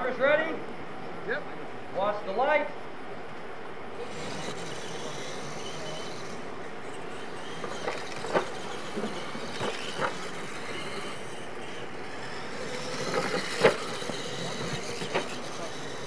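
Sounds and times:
toy trucks running: 3.9s - 16.0s.

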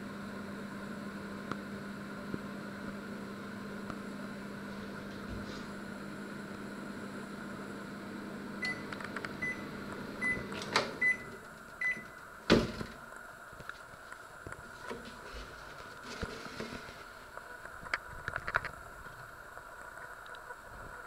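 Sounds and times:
microwave oven humming: 0.0s - 21.0s
microwave switching off click: 8.6s - 13.0s.

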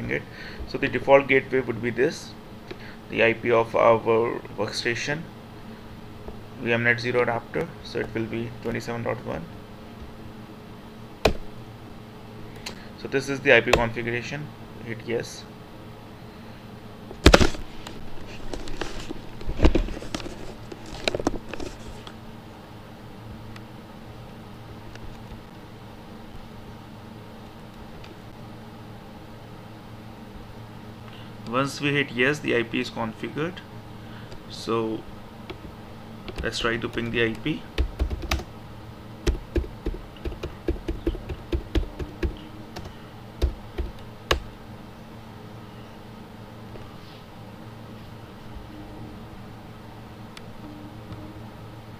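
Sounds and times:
keyboard keys struck: 36.3s - 38.5s, 39.2s - 44.5s.

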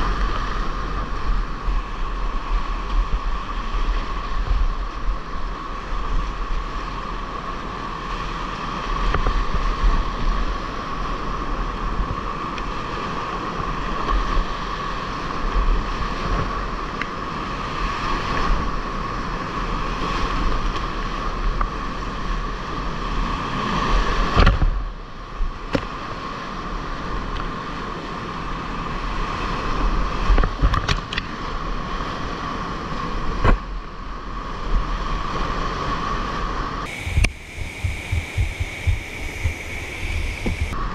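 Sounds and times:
whitewater rapids rushing: 36.9s - 40.9s.

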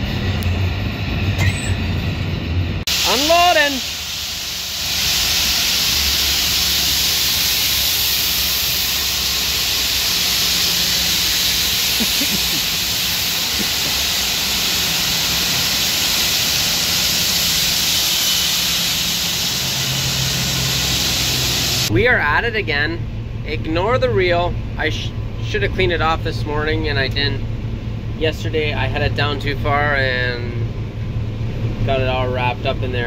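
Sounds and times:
beans pouring rushing hiss: 2.9s - 21.9s.

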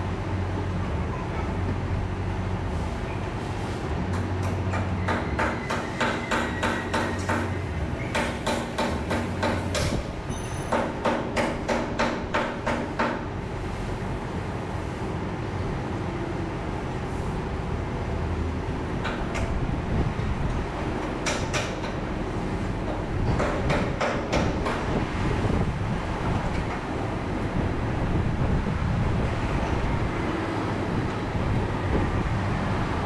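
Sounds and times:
sharp metal knocks: 4.1s - 13.3s, 21.0s - 22.1s, 22.8s - 25.0s.

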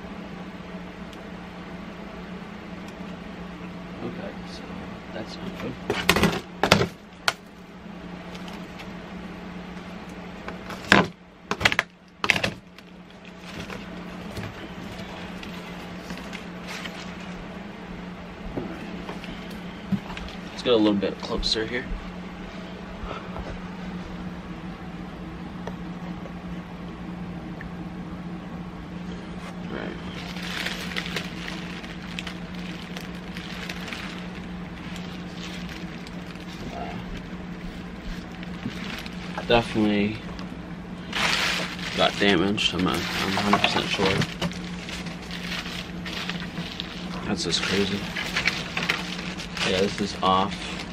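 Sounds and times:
low hum: 0.0s - 50.9s
cardboard rustling: 10.6s - 17.5s, 30.0s - 40.4s, 41.0s - 50.9s
cardboard tearing scrapes: 30.0s - 39.8s, 41.0s - 50.9s.

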